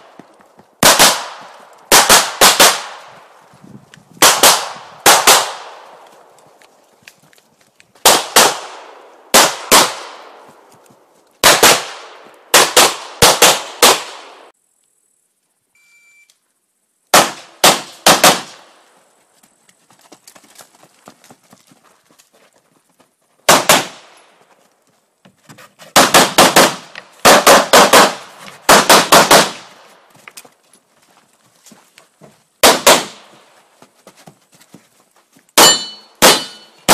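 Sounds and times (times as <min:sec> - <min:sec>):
pistol shots: 0:00.8 - 0:03.1, 0:04.2 - 0:05.8, 0:08.0 - 0:10.4, 0:11.4 - 0:14.4, 0:17.1 - 0:18.7, 0:23.5 - 0:24.1, 0:26.0 - 0:29.7, 0:32.6 - 0:33.3, 0:35.6 - 0:36.9.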